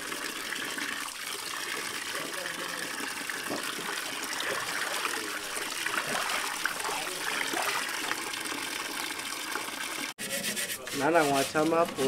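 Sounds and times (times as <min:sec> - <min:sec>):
tap water pouring into a basin: 0:00.0 - 0:10.2
hands splashing water: 0:03.2 - 0:08.4.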